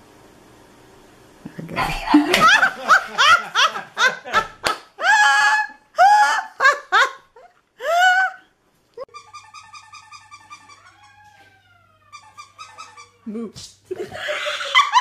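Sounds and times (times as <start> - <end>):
cat meowing: 10.7 - 13.2.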